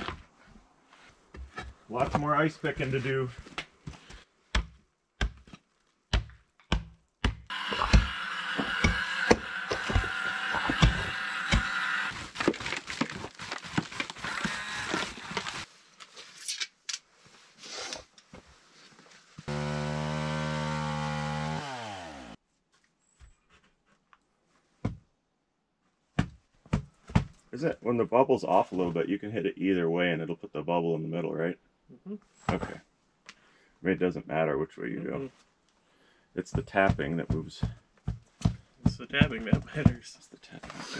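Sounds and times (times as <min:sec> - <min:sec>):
power tool motor running: 0:07.5 - 0:12.1, 0:14.2 - 0:15.6, 0:19.5 - 0:22.4
hand tool chipping ice: 0:07.5 - 0:12.8.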